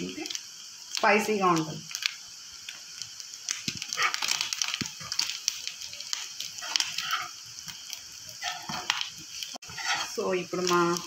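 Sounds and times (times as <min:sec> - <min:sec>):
prawns sizzling in oil: 0:00.0 - 0:11.0
steel spoon scraping a pan: 0:03.9 - 0:05.3, 0:06.1 - 0:11.0.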